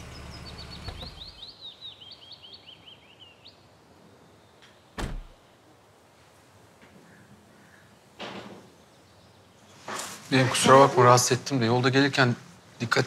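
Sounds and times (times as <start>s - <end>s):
small birds chirping: 0.0s - 5.5s
car door shutting: 0.6s - 1.4s, 5.0s - 5.4s.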